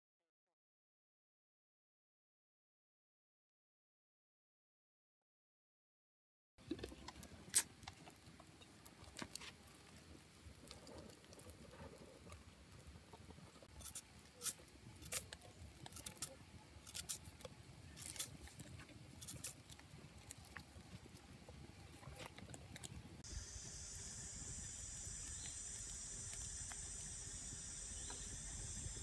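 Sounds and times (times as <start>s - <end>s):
wood fire crackling: 6.6s - 29.0s
leaves rustling: 13.8s - 21.2s.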